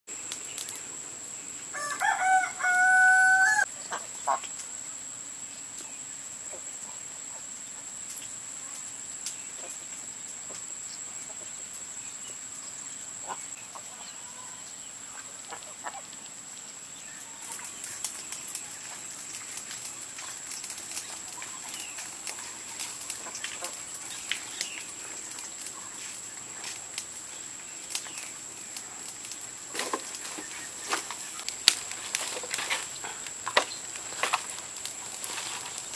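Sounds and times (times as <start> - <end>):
crackling ticks: 0.2 - 0.8, 8.0 - 10.7, 17.4 - 35.9
rooster crowing: 1.7 - 3.7.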